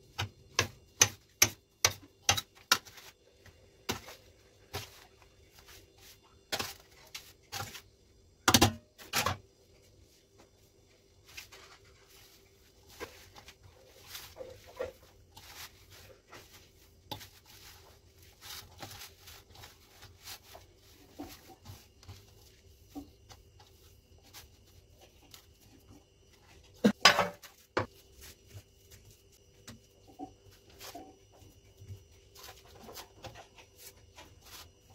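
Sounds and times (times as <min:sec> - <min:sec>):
hands squeezing dough in metal bowl: 0:11.1 - 0:26.4.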